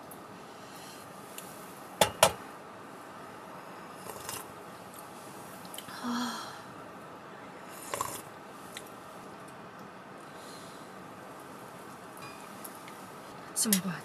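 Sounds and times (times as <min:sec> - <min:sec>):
sipping and slurping broth: 0:04.0 - 0:04.5, 0:07.7 - 0:08.3.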